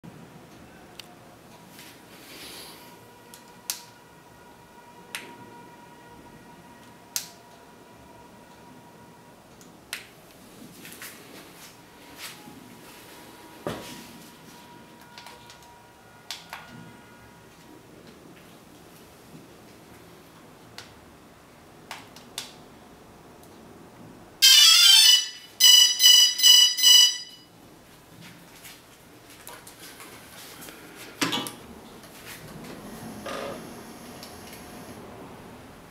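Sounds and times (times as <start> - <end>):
faint high electronic tone: 24.4 - 27.5
short beeps: 24.4 - 27.5.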